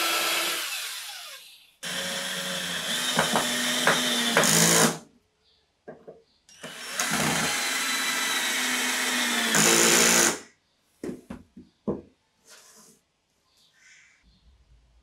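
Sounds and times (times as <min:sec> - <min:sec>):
cordless drill driving screw: 0:00.0 - 0:05.0, 0:06.6 - 0:10.4.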